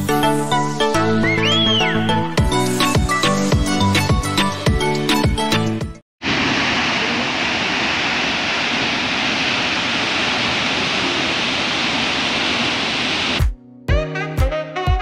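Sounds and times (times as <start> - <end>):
waterfall rushing: 6.2 - 13.4.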